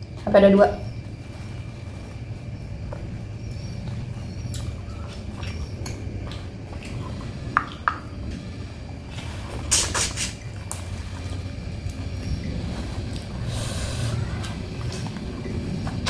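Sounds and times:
steady low hum: 0.0s - 16.0s
wet sucking and smacking: 9.6s - 12.1s.

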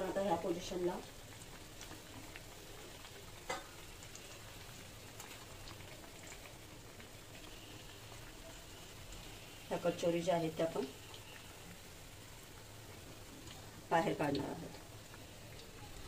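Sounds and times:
food sizzling in hot oil: 0.0s - 16.0s.

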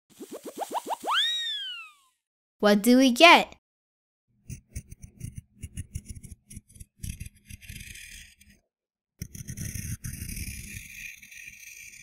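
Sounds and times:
pencil scratching on paper: 4.5s - 8.6s, 9.2s - 12.0s.

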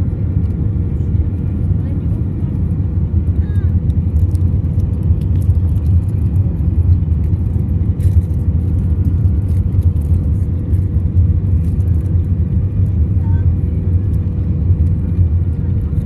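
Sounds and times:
aircraft engines and rushing air: 0.0s - 16.0s.

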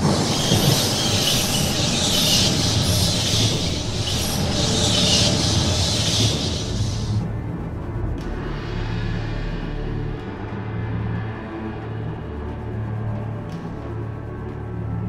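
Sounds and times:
high hiss: 0.0s - 7.2s
deep rumble: 0.0s - 11.2s.

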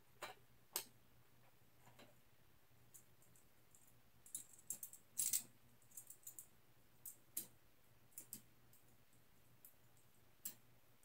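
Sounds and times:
fingers handling small plastic parts: 2.9s - 8.9s.

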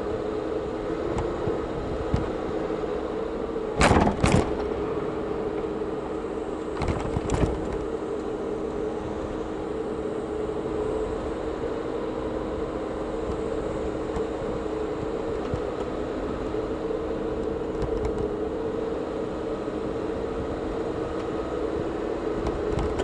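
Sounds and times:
car road and engine hum: 0.0s - 23.0s
wheels thumping over bumps: 3.8s - 4.7s, 6.8s - 7.8s.

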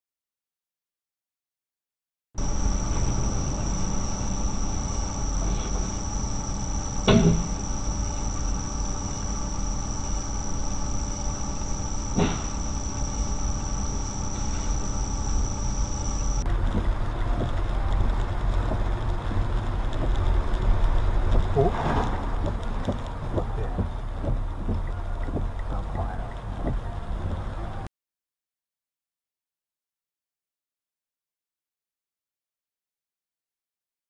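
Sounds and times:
high-pitched whine: 2.4s - 27.9s
low rumble: 2.4s - 27.9s
rainy street noise: 2.4s - 27.9s.

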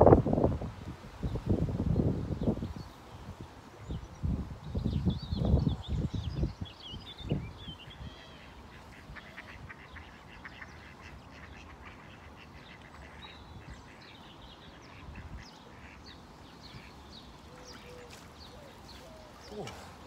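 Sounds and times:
ducks quacking: 8.2s - 17.0s.

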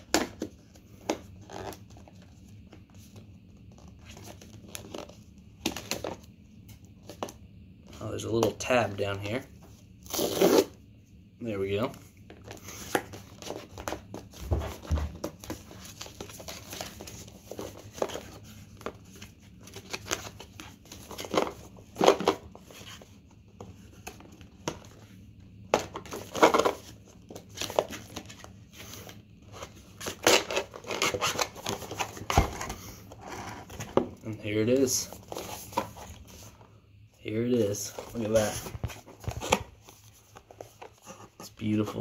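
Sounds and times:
packaging rustling and crinkling: 37.5s - 42.0s.

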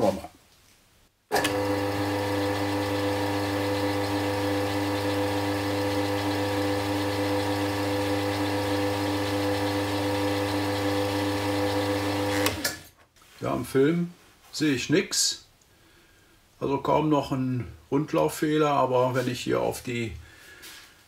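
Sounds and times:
drill press motor hum: 1.3s - 12.8s.

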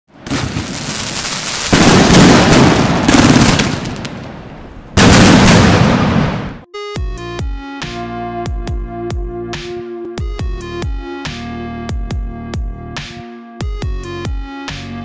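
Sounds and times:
fireworks bursting: 0.1s - 6.6s
fireworks hissing: 0.3s - 4.2s.

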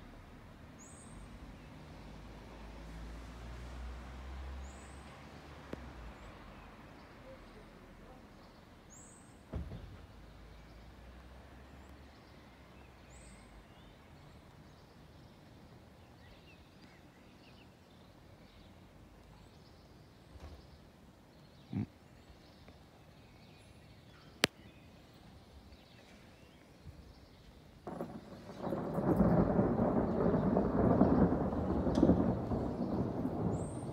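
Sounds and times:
bird chirping: 11.7s - 33.9s
distant thunder: 27.8s - 33.9s
low thunder rumble: 27.8s - 33.9s
thunder crack: 27.8s - 33.9s.

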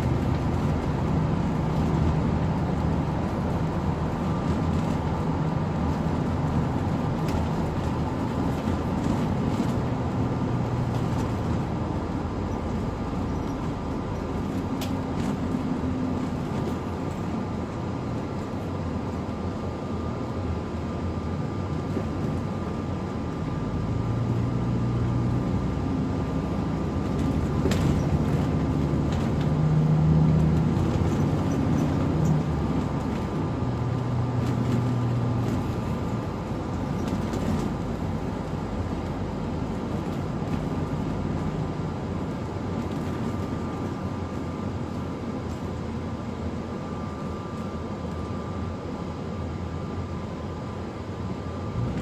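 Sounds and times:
bus engine and road noise: 0.0s - 52.0s
thin constant whine: 30.4s - 52.0s.

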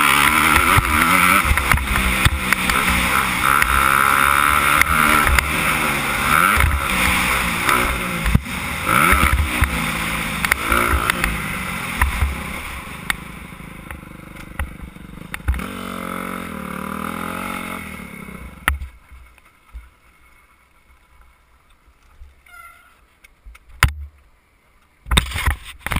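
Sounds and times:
motocross bike engine revving: 0.0s - 18.7s.

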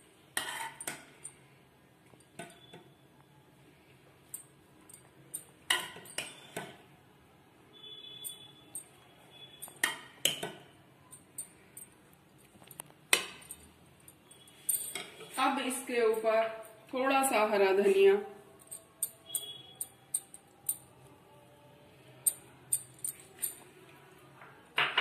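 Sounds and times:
metal spoon clinking on pot: 4.3s - 6.8s, 8.1s - 12.0s, 14.4s - 15.4s, 18.6s - 20.9s, 22.2s - 23.6s.

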